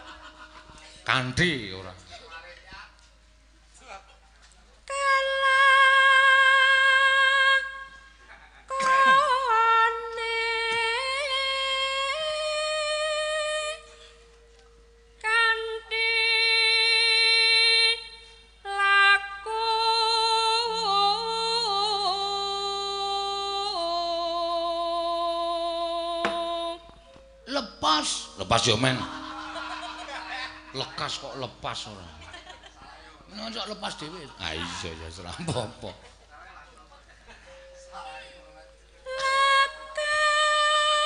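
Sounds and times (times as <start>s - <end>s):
woman singing through a microphone: 4.8s - 14.2s, 15.2s - 27.1s, 39.0s - 41.0s.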